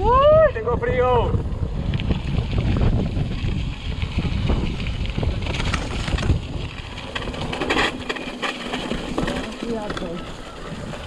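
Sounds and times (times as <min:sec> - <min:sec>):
bike rattling: 0:00.0 - 0:11.0
wind rumbling on microphone: 0:00.0 - 0:11.0
tyres on loose dirt: 0:01.4 - 0:11.0.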